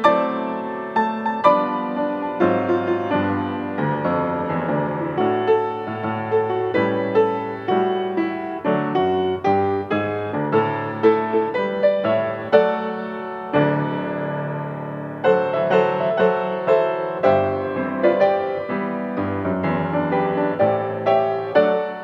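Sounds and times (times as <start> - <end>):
solo piano playing: 0.0 - 22.0.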